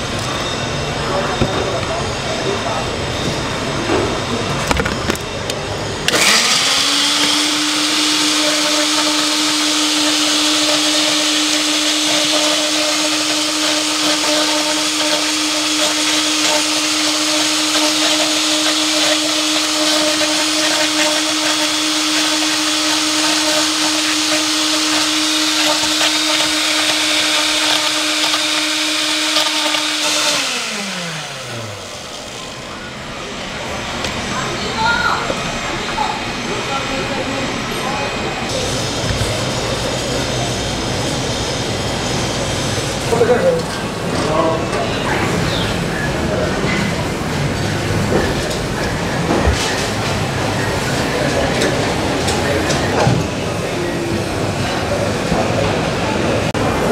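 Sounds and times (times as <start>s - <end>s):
blender motor whining: 3.2s - 43.3s.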